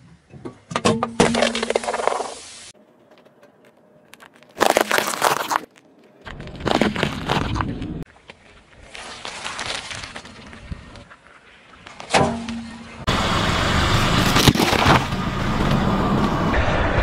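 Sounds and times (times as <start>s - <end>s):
car engine and tire noise: 0.0s - 17.0s
pastry crushing under tire: 3.0s - 7.6s
pumpkin cracking and bursting: 3.7s - 7.5s.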